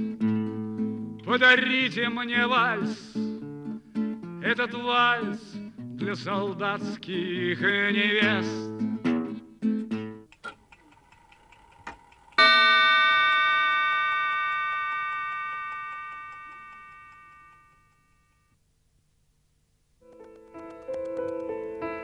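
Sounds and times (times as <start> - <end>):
acoustic guitar chords: 0.0 - 10.3
bell-like chime: 12.4 - 17.9.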